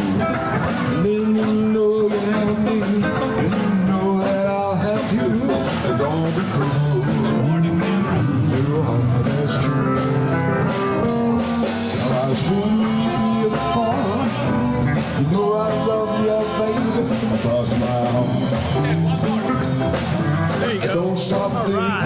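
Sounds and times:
keyboard: 0.0s - 22.0s
live rock and roll band: 0.0s - 22.0s
person singing: 0.0s - 22.0s
steady drum beat: 0.0s - 22.0s.

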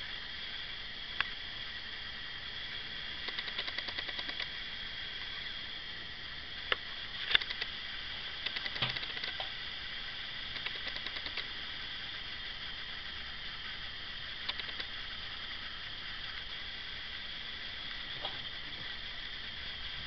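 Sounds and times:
steady hiss: 0.0s - 20.0s
mouse clicks: 3.3s - 4.5s, 8.4s - 9.5s, 10.6s - 11.4s, 14.5s - 14.9s
mouse scroll wheel ticking: 3.3s - 4.5s, 7.3s - 7.7s, 8.4s - 9.5s, 10.5s - 11.4s, 14.4s - 14.9s.

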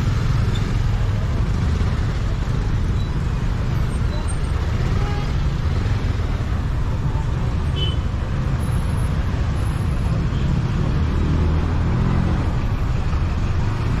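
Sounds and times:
low rumble of traffic: 0.0s - 14.0s.

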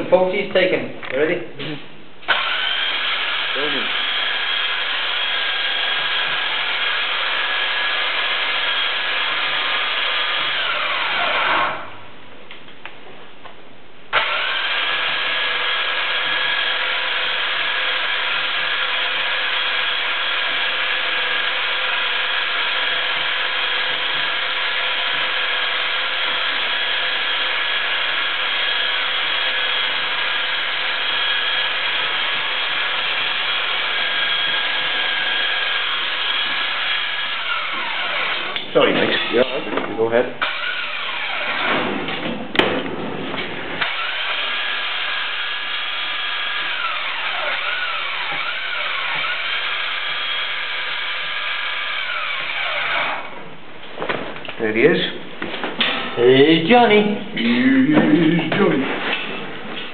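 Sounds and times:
winch motor whine: 2.3s - 11.9s, 14.2s - 38.7s.

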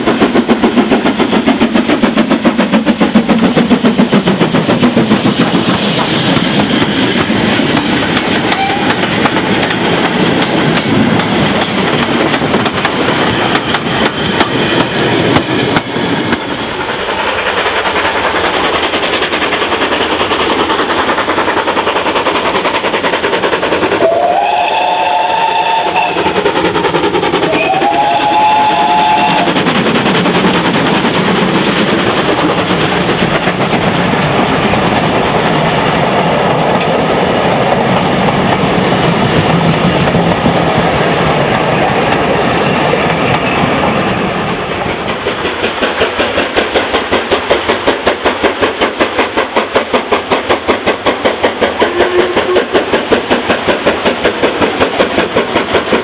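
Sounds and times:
steam train running: 0.0s - 56.0s
steam whistle blasts: 8.5s - 9.0s, 24.0s - 26.4s, 27.5s - 29.6s, 51.9s - 52.7s
wheels clicking over rail joints: 44.8s - 56.0s.

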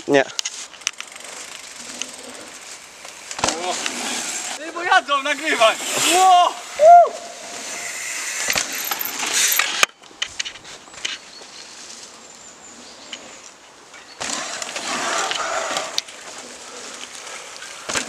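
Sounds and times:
bike tyres rushing over leaves: 0.0s - 9.8s, 14.2s - 18.0s.

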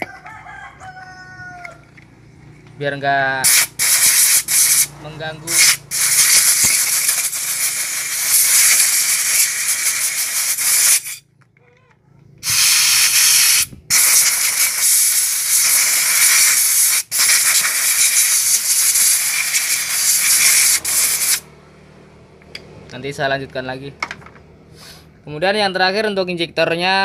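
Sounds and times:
aerosol spray hissing: 3.5s - 4.9s, 5.5s - 11.2s, 12.4s - 21.4s.

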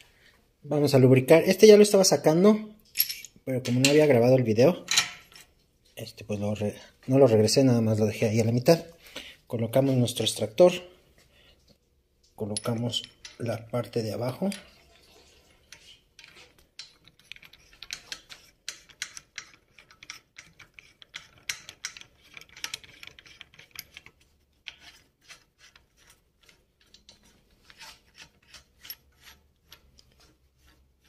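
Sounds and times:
metal clicking and scraping: 15.7s - 31.0s.

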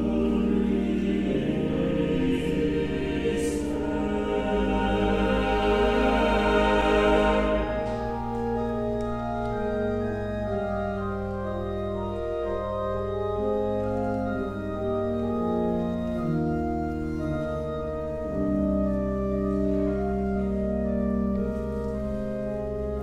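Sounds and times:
choir singing: 0.0s - 9.0s
church organ chords: 0.0s - 23.0s.

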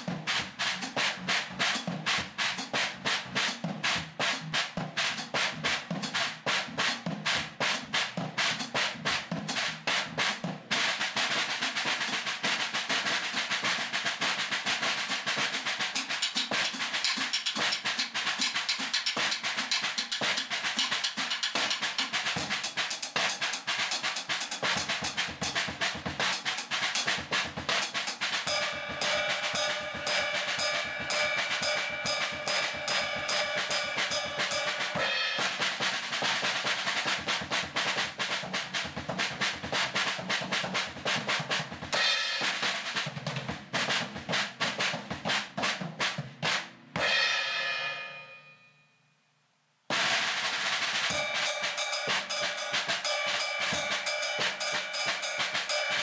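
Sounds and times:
cymbal: 0.0s - 40.0s, 41.9s - 43.2s, 46.5s - 49.0s, 49.9s - 56.0s
muted drum strokes: 16.1s - 48.6s, 49.9s - 56.0s.

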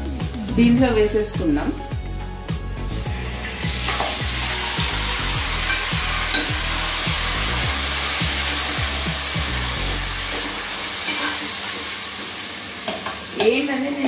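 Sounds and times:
background music with low beat: 0.0s - 11.0s
chicken sizzling in hot oil: 2.7s - 14.0s.

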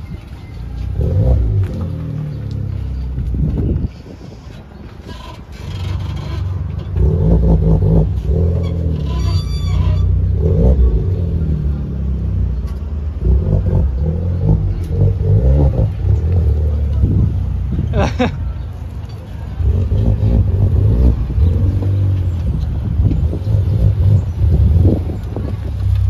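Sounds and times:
car engine at low revs: 0.2s - 4.0s, 10.1s - 26.0s.

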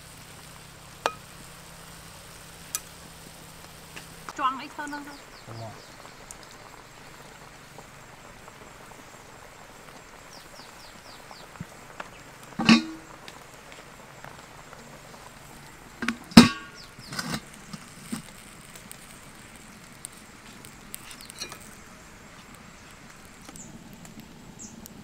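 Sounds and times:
broth simmering: 0.0s - 25.0s
metal bowl clanking on wok: 12.6s - 13.1s, 16.0s - 17.4s.

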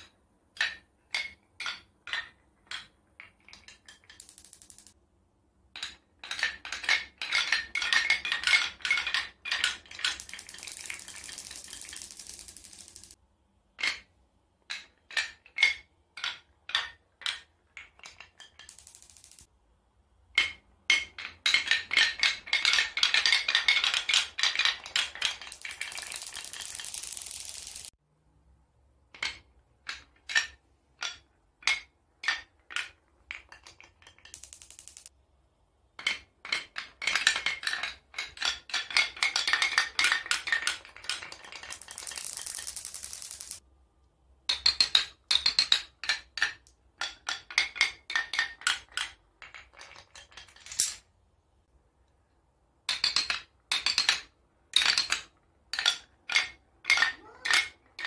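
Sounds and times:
marbles clacking through wooden run: 0.6s - 5.0s, 5.8s - 13.2s, 14.7s - 19.5s, 20.4s - 28.0s, 29.2s - 35.1s, 36.0s - 43.6s, 44.5s - 50.9s.

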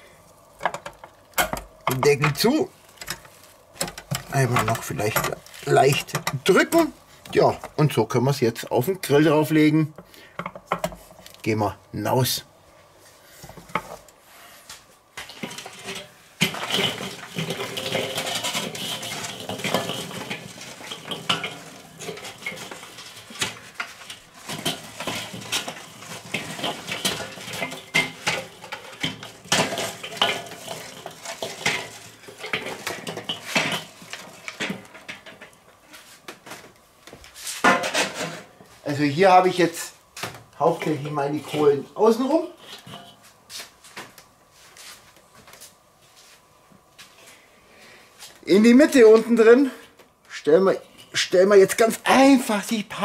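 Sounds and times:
charcoal clattering on metal grill: 0.3s - 8.0s, 9.0s - 11.6s, 13.4s - 14.1s, 15.1s - 44.3s.

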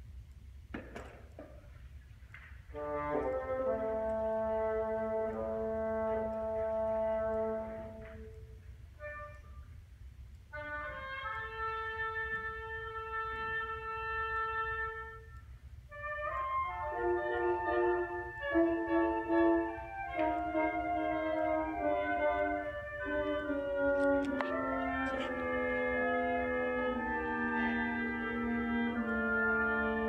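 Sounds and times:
concert band playing chords: 16.8s - 30.0s.

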